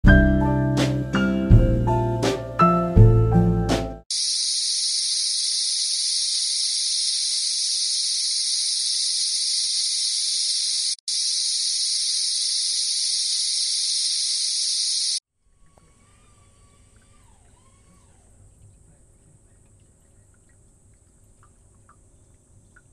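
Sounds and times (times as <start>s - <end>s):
cicadas chorus: 4.1s - 15.2s.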